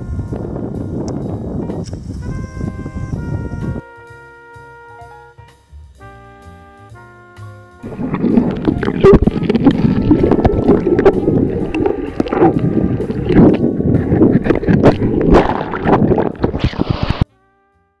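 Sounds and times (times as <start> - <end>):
bubbles popping: 7.8 - 17.2
water splashing and gurgling: 7.8 - 17.2.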